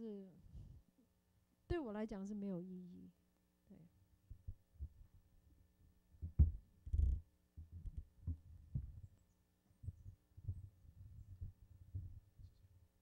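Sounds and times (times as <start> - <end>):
microphone handling thumps: 6.2 - 9.1.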